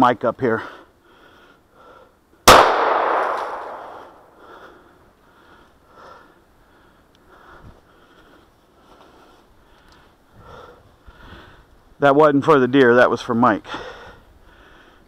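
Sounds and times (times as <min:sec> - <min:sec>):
handgun shot echoing: 0:02.5 - 0:04.3.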